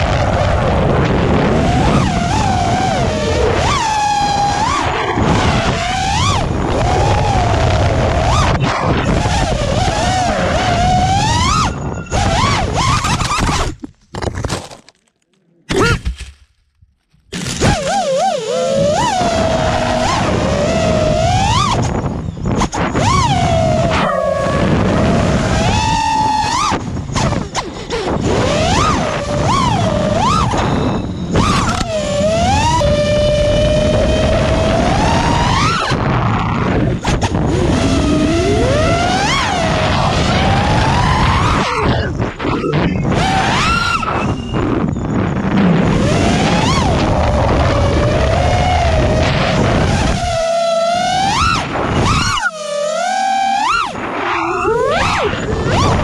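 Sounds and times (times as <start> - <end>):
quadcopter motors whining: 0.0 - 13.8, 17.4 - 56.0
wind rushing on microphone: 0.0 - 13.9, 17.6 - 56.0
crash into branches and leaves: 15.8 - 17.8.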